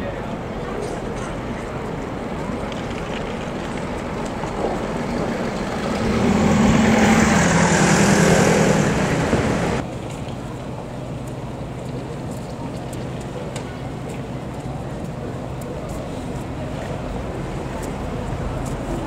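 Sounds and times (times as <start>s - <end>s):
city street traffic: 0.0s - 19.0s
heavy vehicle engine passing: 4.0s - 9.8s.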